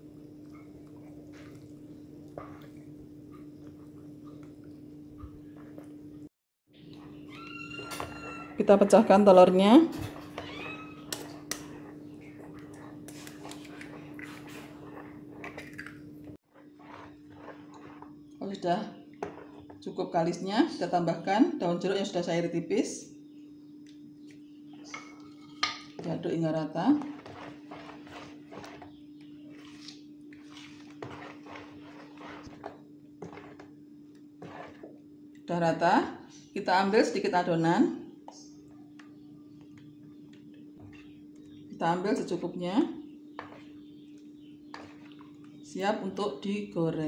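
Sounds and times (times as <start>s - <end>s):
spoon squishing through batter: 0.0s - 6.0s, 9.9s - 20.4s, 23.7s - 35.5s, 43.0s - 46.2s.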